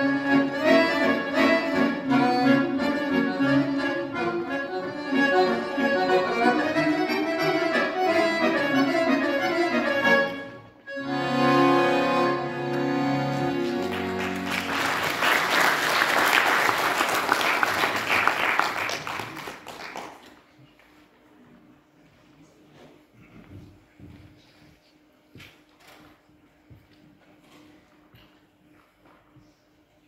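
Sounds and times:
solo accordion playing: 0:00.0 - 0:15.0
audience applause: 0:13.4 - 0:20.3.

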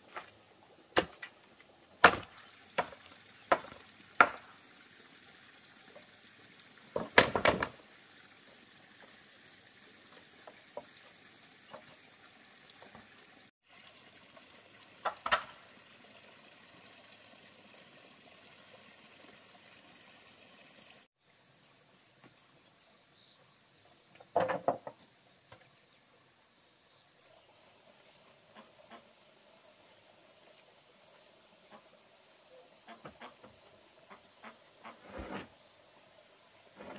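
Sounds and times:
bamboo poles knocking: 0:02.0 - 0:04.5, 0:24.2 - 0:25.0.

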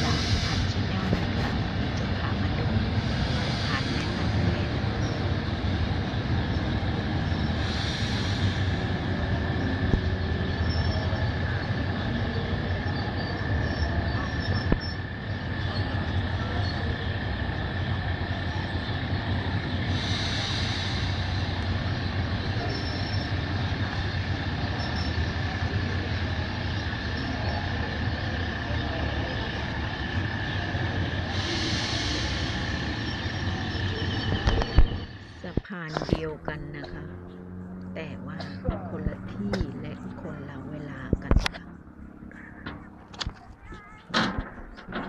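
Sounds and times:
train rumbling over bridge: 0:00.0 - 0:45.0.

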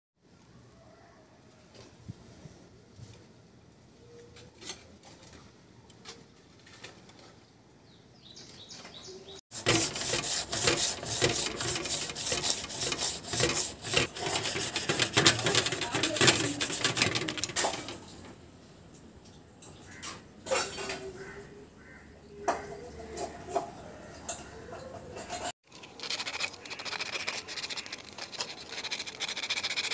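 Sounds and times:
sandpaper scratching metal: 0:09.5 - 0:17.8, 0:25.2 - 0:29.9.

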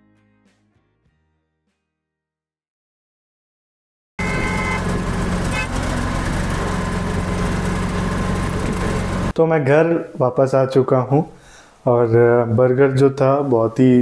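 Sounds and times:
car horn toot: 0:04.2 - 0:05.9
vehicle engine hum and road noise: 0:04.2 - 0:09.3.

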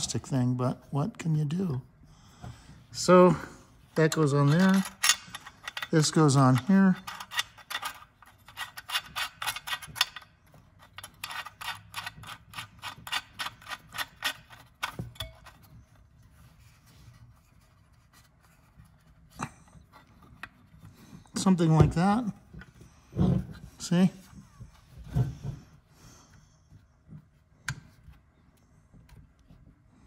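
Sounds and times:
small metal parts clicking: 0:04.1 - 0:15.6.

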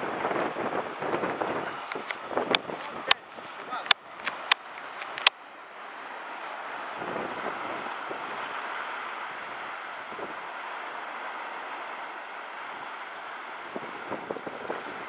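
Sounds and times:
surf breaking over rocks: 0:00.0 - 0:15.0
sharp click: 0:03.8 - 0:05.4.

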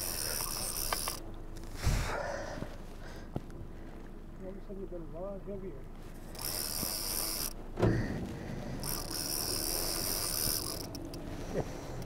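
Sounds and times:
fishing reel whirring and clicking: 0:00.0 - 0:01.8, 0:06.2 - 0:07.6, 0:08.8 - 0:12.0.

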